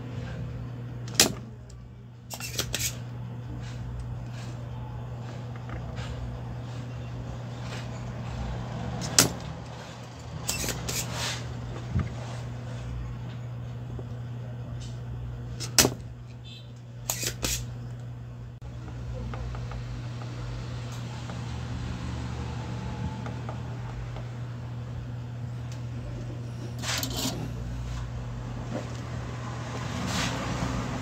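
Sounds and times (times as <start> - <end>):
steady low hum: 0.0 - 31.0
desoldering pump snapping: 1.0 - 3.0.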